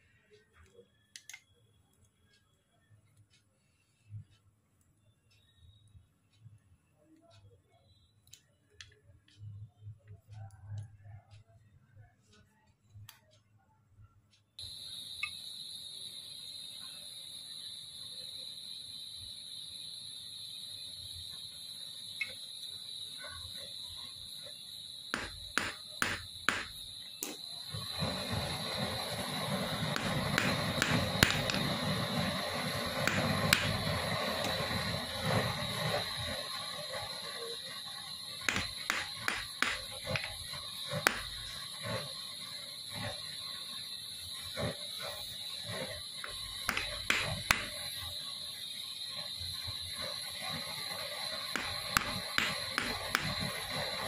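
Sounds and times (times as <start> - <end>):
cricket chirring: 0.0 - 54.0
metal tool taps and clicks: 25.2 - 27.4, 30.0 - 31.7, 33.1 - 33.8, 38.5 - 40.3, 41.1 - 41.4, 46.7 - 47.7, 51.6 - 53.4.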